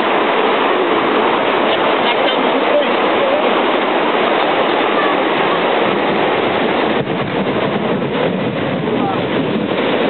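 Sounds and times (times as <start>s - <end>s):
water rushing over weir: 0.0s - 10.0s.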